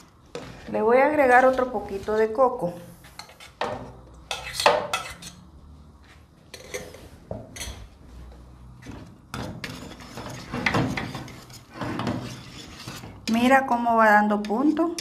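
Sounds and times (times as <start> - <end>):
whisk scraping pot: 9.3 - 15.0.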